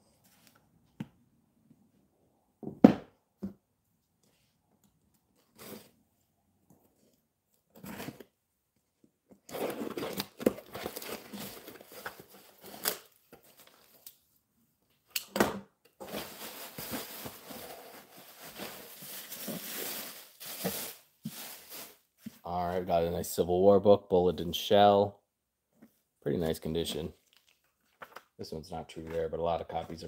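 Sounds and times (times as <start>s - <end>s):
paper and plastic rustling: 9.5s - 14.0s, 16.0s - 22.4s.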